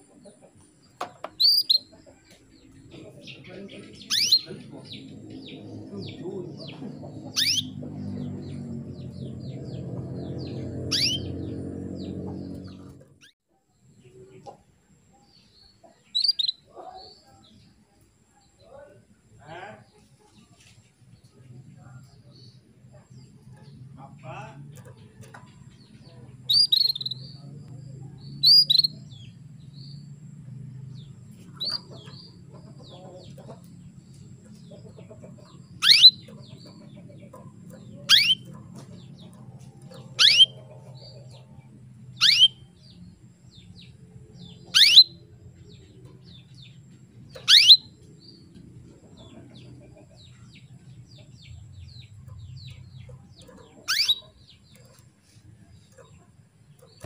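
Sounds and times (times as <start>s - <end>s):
canary calling: 1.2s - 13.4s, 16.1s - 17.1s, 26.4s - 29.6s, 31.0s - 33.7s, 34.6s - 48.4s, 51.7s - 55.0s.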